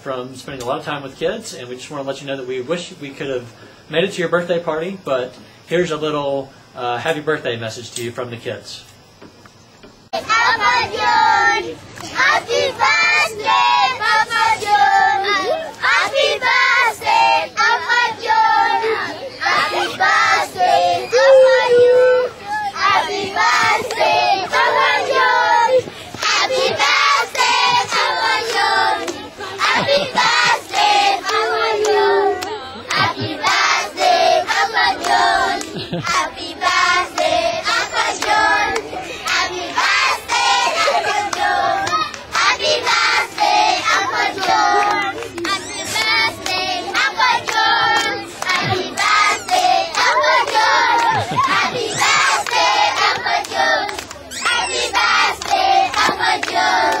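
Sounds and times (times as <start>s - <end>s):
children singing: 10.2s - 57.0s
children clapping hands: 29.8s - 33.6s, 38.2s - 39.8s, 43.3s - 54.2s, 55.0s - 57.0s.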